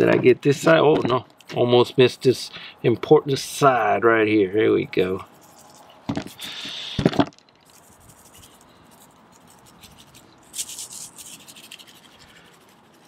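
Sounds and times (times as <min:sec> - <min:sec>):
shaker bottle rattling: 0:07.3 - 0:13.0.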